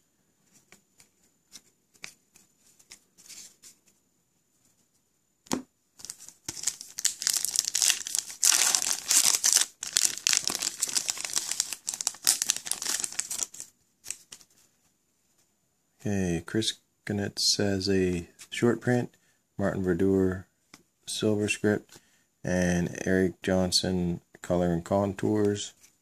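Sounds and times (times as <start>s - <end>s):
foil wrapper crinkling and tearing: 6.0s - 13.7s.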